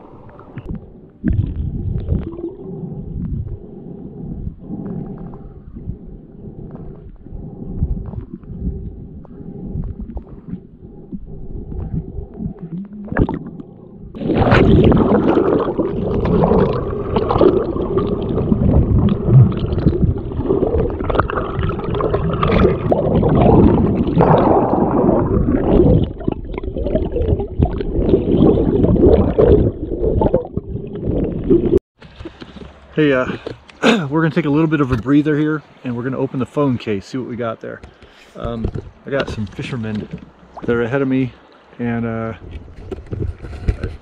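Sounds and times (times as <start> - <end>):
river water rushing underwater: 12.4 - 33.0.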